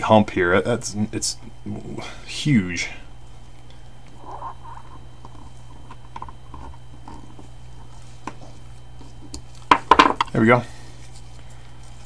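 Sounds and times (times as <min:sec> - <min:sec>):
steady low hum: 0:00.0 - 0:12.0
gloved fingers rubbing rubber: 0:04.1 - 0:05.8.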